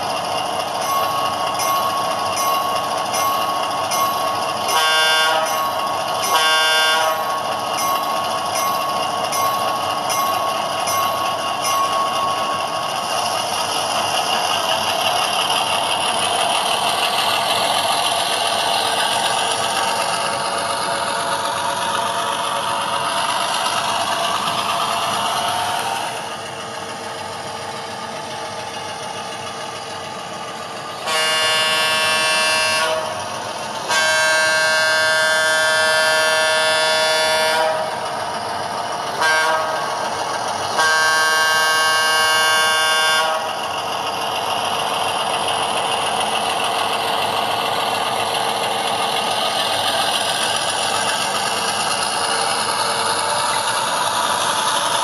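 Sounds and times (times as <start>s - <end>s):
train horn: 4.7s - 5.6s, 6.2s - 7.3s, 31.0s - 33.2s, 33.9s - 38.0s, 39.2s - 39.9s, 40.8s - 43.6s.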